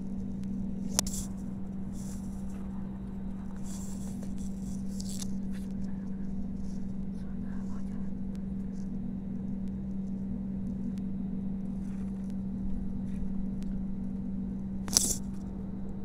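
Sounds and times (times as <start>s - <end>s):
jet engines humming in cabin: 0.0s - 16.0s
sharp click: 14.9s - 15.4s.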